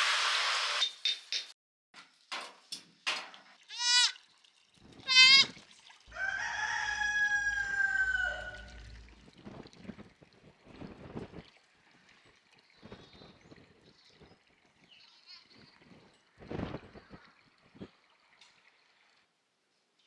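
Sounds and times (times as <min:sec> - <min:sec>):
goats and lambs bleating: 0:03.7 - 0:04.2, 0:05.0 - 0:05.6
low outdoor rumble: 0:06.8 - 0:10.2.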